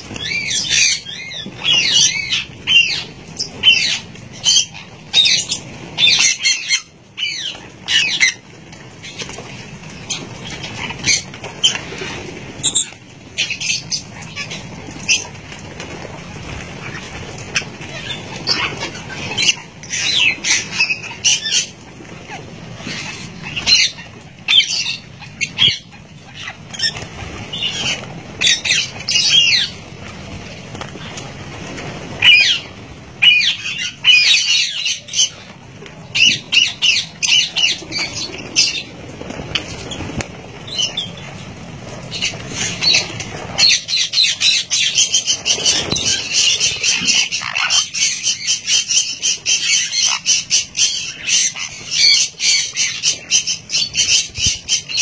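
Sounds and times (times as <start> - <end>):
parrots chirping and squawking: 0.0 - 55.0.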